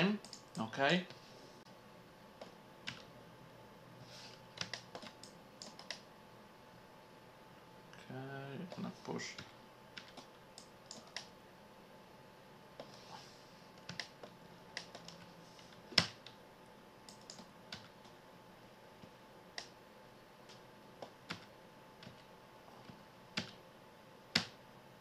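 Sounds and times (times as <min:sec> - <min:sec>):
keyboard and mouse clicking: 0:00.2 - 0:00.7, 0:02.4 - 0:03.1, 0:04.6 - 0:06.1, 0:08.7 - 0:11.3, 0:13.8 - 0:15.3, 0:17.1 - 0:18.2.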